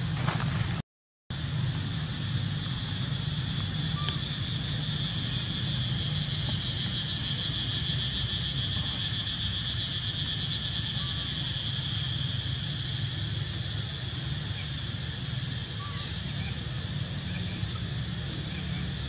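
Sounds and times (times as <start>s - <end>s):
low steady hum: 0.0s - 19.0s
insects buzzing: 1.4s - 19.0s.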